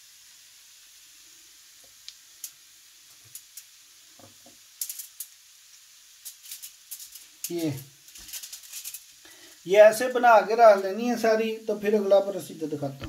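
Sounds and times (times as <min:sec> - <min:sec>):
faint steady hiss: 0:00.0 - 0:13.0
light ticks of sprinkled cheese: 0:01.8 - 0:03.8, 0:04.6 - 0:09.6.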